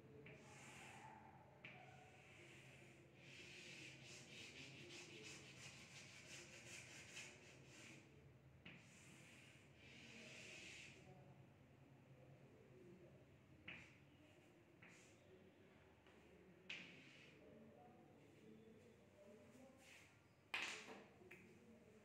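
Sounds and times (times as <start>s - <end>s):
chalk scratching on blackboard: 0.2s - 1.1s, 1.8s - 11.0s, 16.7s - 17.4s.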